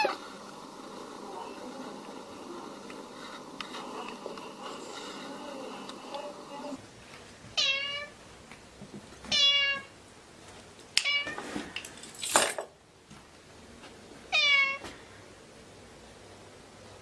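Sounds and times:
breathy noise: 0.0 - 6.8
cat meowing: 7.6 - 8.1, 9.3 - 9.9, 14.3 - 14.8.

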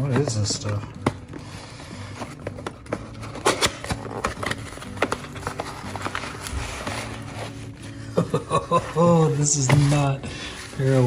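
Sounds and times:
cardboard box being opened: 2.2 - 7.7.

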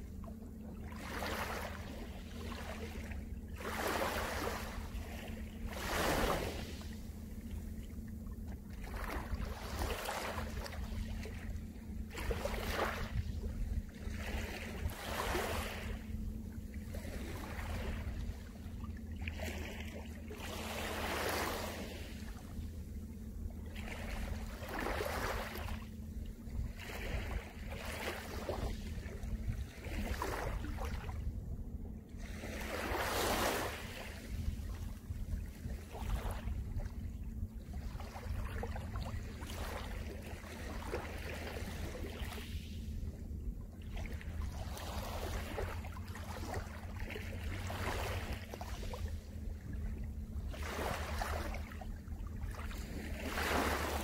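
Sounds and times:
steady low rumble: 0.0 - 54.0
waves lapping on pebble beach: 3.6 - 4.9, 5.7 - 6.8, 20.4 - 22.2, 23.8 - 25.8, 32.3 - 34.7, 44.4 - 49.0, 50.5 - 51.6, 52.5 - 54.0.

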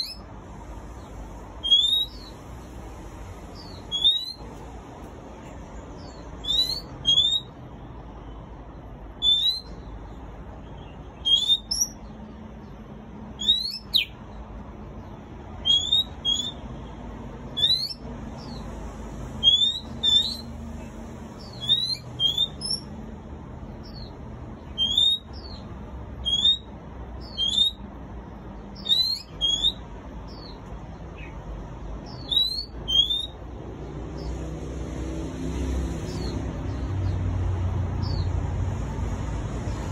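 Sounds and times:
bird singing sharp whistles: 0.0 - 0.2, 1.6 - 2.3, 3.6 - 4.4, 6.4 - 7.6, 9.2 - 9.7, 11.2 - 12.0, 13.4 - 14.1, 15.6 - 16.6, 17.6 - 18.5, 19.4 - 20.5, 21.4 - 22.8, 24.8 - 25.6, 26.2 - 27.8, 28.8 - 30.5, 32.1 - 33.4.

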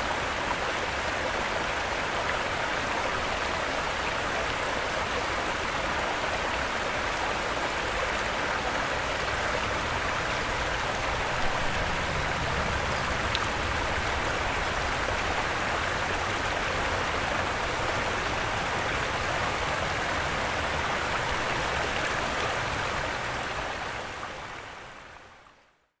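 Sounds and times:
flowing water rushing: 0.0 - 25.7.

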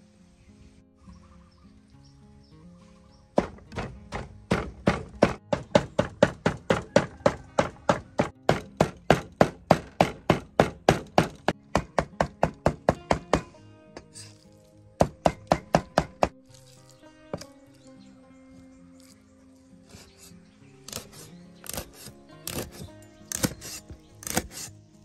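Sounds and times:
cleaver chopping meat on board: 3.4 - 13.6, 15.0 - 16.5, 20.9 - 24.7.

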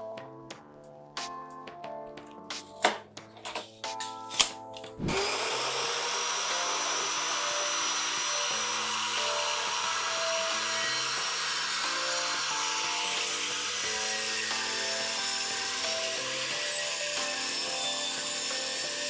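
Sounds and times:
track saw cutting plywood: 5.0 - 19.0.

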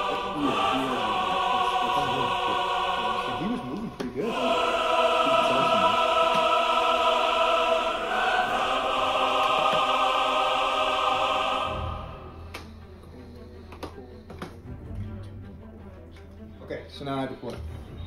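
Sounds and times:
choral chords: 0.0 - 13.6.

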